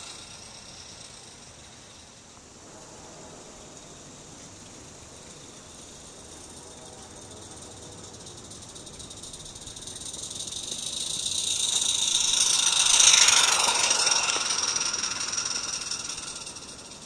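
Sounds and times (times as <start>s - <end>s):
steam locomotive exhaust hissing: 0.0s - 17.0s.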